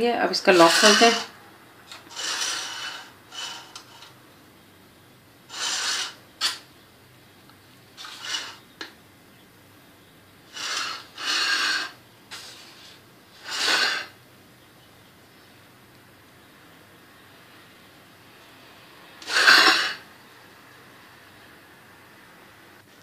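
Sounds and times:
utensil scraping a pan: 0:00.3 - 0:04.2, 0:05.5 - 0:06.7, 0:08.0 - 0:08.7, 0:10.5 - 0:14.2, 0:19.2 - 0:20.0.

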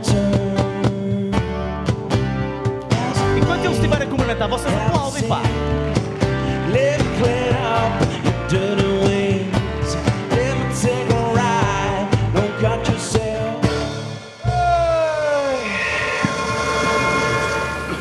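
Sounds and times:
man singing: 0:00.0 - 0:01.9, 0:02.9 - 0:14.9
acoustic guitar: 0:00.0 - 0:15.0
double bass: 0:00.0 - 0:15.0
steady drum beat: 0:00.0 - 0:15.4.

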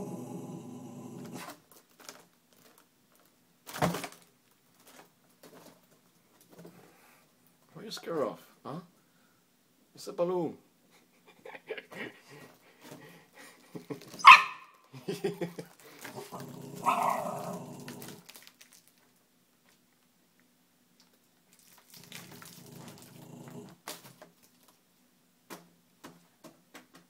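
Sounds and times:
dog barking and growling: 0:00.0 - 0:01.6, 0:14.2 - 0:14.7, 0:16.1 - 0:18.2, 0:22.1 - 0:23.8.

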